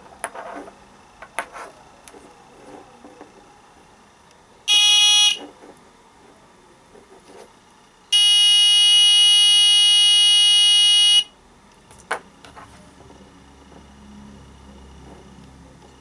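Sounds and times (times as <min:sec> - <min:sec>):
high-pitched buzzer: 0:04.7 - 0:05.4, 0:08.1 - 0:11.4.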